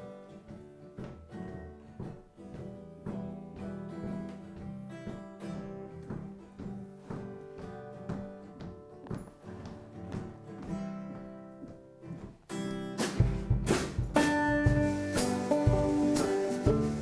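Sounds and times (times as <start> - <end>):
banjo and ukulele strumming: 12.9 - 17.0.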